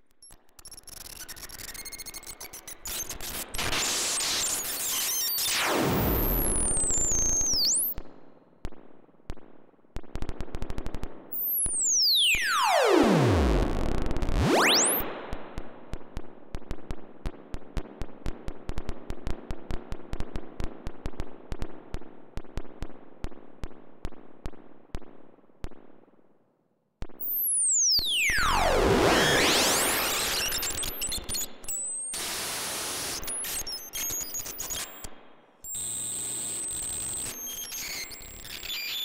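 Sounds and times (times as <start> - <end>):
oscillator clicks and crackles: 0.0 - 8.0, 8.6 - 14.5, 15.3 - 25.8
electronic oscillator sweeping tones: 11.4 - 15.0, 27.6 - 32.3.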